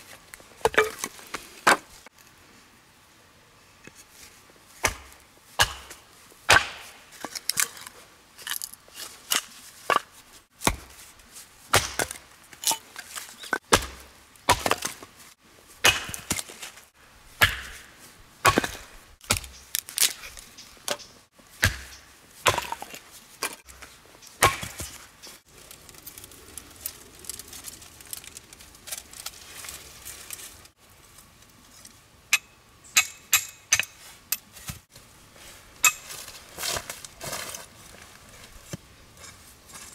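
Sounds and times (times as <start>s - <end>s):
axe chopping wood: 4.8s - 7.0s, 9.9s - 11.0s, 11.7s - 12.2s, 13.6s - 15.0s, 15.8s - 16.6s, 17.4s - 20.1s, 21.6s - 23.7s, 24.4s - 25.0s.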